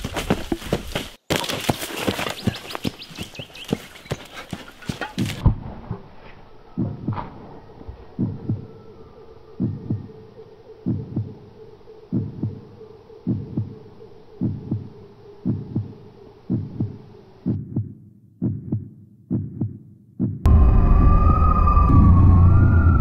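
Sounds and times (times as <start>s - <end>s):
steady low hum: 5.6s - 17.8s
heartbeat thumps: 6.8s - 8.8s, 9.6s - 10.2s, 10.8s - 11.5s, 12.1s - 20.5s.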